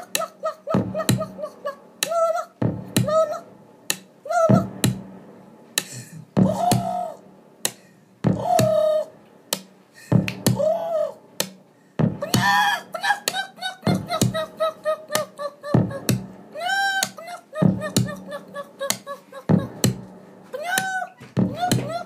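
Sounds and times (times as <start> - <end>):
pitch-bent vocal samples: 0.0 - 5.0, 6.0 - 9.2, 10.1 - 11.5, 12.1 - 22.0
hard drum hits: 2.6 - 3.6, 4.5 - 5.5, 6.3 - 9.5, 10.1 - 10.7, 11.5 - 12.6, 15.8 - 16.6, 19.5 - 20.6.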